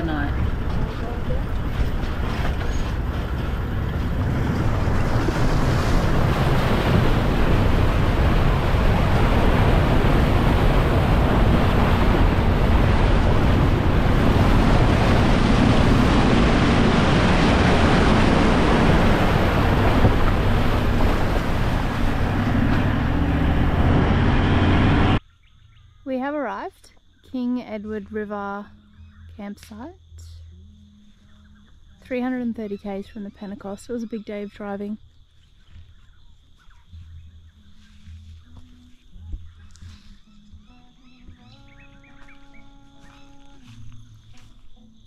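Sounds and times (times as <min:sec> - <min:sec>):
tyres rumbling on dirt road: 0:00.0 - 0:25.2.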